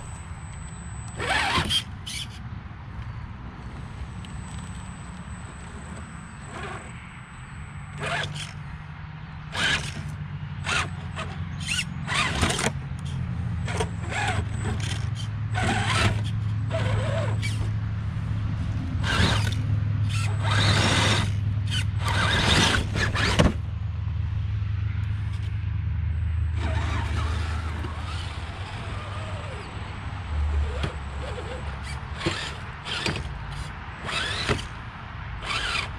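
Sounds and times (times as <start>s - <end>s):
tyres scraping over rocks: 0.9s - 2.4s, 4.4s - 7.0s, 8.0s - 8.6s, 9.5s - 17.7s, 19.0s - 23.6s, 26.6s - 29.8s, 30.5s - 34.8s, 35.4s - 35.9s
electric motor humming: 9.5s - 17.7s, 30.5s - 34.8s, 35.4s - 35.9s.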